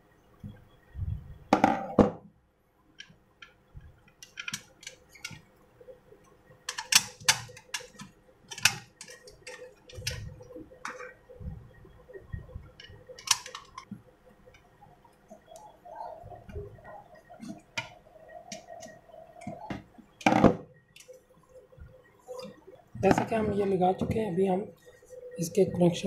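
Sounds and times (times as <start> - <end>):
plastic and metal parts clicking: 3.0 - 5.4, 6.7 - 11.1, 12.8 - 13.9.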